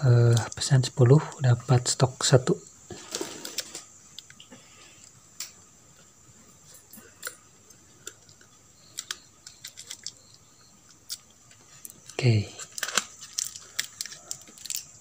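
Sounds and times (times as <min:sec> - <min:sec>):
circuit boards clicking and ticking: 0:06.8 - 0:12.2.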